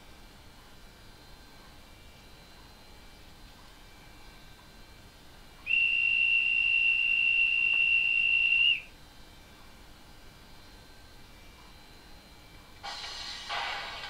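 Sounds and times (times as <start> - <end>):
high steady whistle: 5.6 - 9.0.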